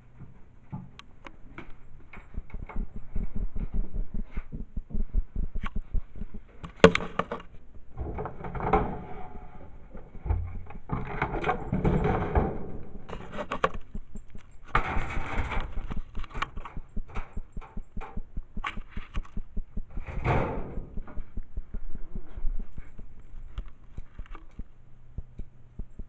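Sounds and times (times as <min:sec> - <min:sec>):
clicks and knocks: 0:00.8 - 0:09.0, 0:10.2 - 0:26.0
camera handling rubbing and rustling: 0:22.9 - 0:24.7.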